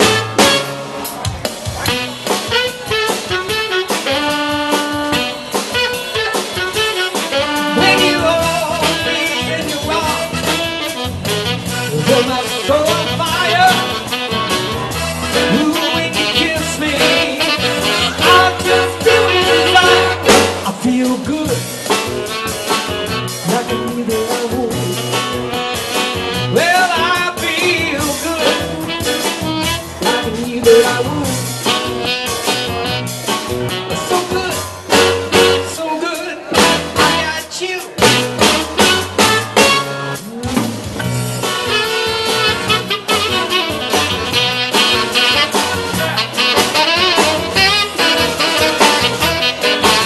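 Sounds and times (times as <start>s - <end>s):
drum kit: 0.0s - 50.0s
keyboard: 0.0s - 50.0s
walking bass line: 1.4s - 50.0s
saxophone playing lead: 1.8s - 20.6s, 25.0s - 27.1s, 28.5s - 30.2s, 31.6s - 34.1s, 38.0s - 50.0s.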